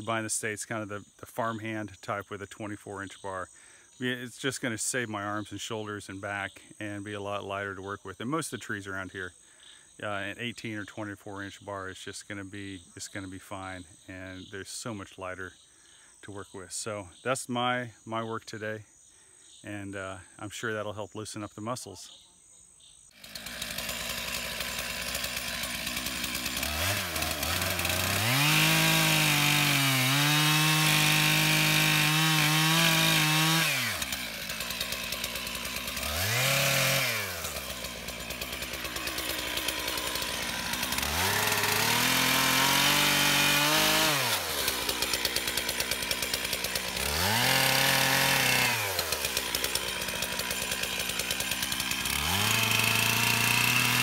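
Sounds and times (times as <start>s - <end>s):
chainsaw revving and idling: 23.1s - 54.0s.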